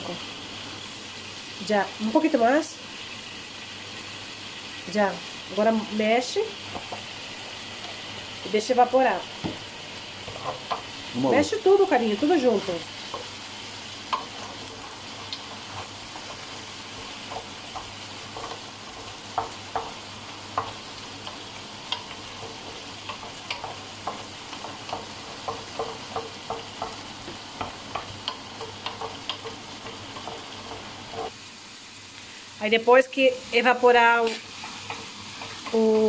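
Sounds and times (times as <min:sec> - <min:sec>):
paella sizzling in a pan: 0:00.0 - 0:36.0
wooden spoon scraping a pan: 0:09.5 - 0:11.1, 0:11.9 - 0:31.3, 0:34.2 - 0:35.8.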